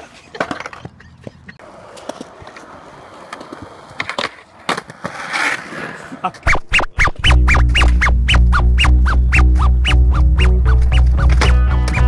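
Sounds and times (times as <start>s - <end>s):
skateboard clacks: 0.0s - 5.8s
skateboard rolling on concrete: 0.0s - 6.5s, 9.6s - 12.0s.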